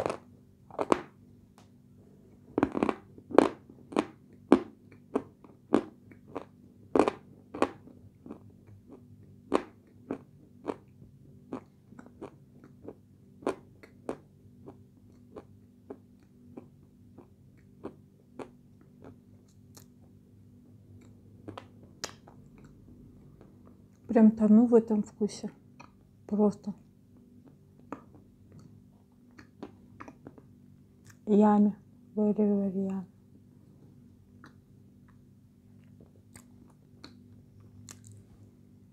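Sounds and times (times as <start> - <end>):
woman chewing crunchy clay: 0.0 - 1.2, 2.3 - 20.0, 20.9 - 24.1, 27.2 - 31.3, 34.3 - 38.5.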